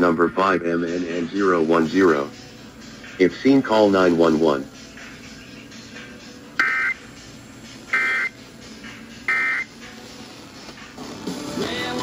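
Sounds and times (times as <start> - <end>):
electronic data bursts: 6.6 - 8.4, 9.2 - 9.8.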